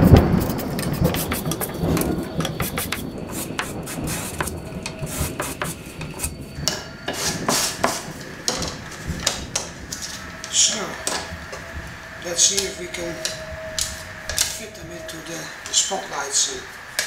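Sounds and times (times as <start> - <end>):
sandpaper scratching wood: 0.0 - 5.9.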